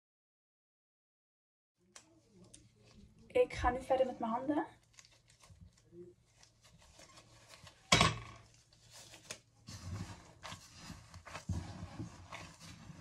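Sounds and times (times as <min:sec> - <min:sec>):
hands kneading crumbly dough: 0:08.5 - 0:13.0.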